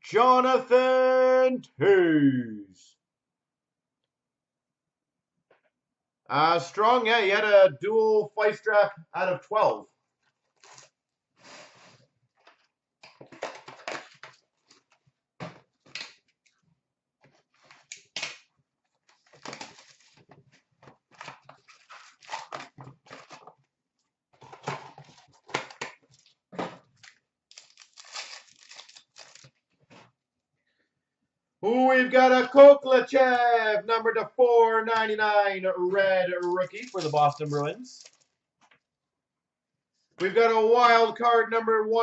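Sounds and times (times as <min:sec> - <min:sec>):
wrapper and cardboard crinkling tearing: 0:10.4 - 0:11.7, 0:12.4 - 0:15.0, 0:17.6 - 0:23.6, 0:24.4 - 0:29.7, 0:36.7 - 0:38.4
cards being handled: 0:36.4 - 0:38.3.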